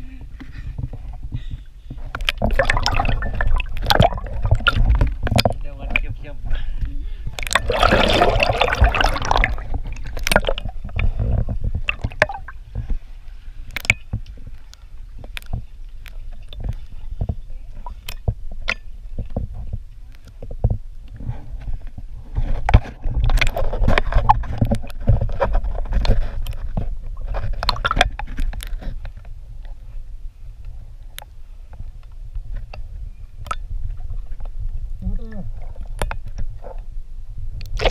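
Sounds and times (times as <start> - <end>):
water splashing around swimmer: 2.3 - 5.6, 7.4 - 12.7.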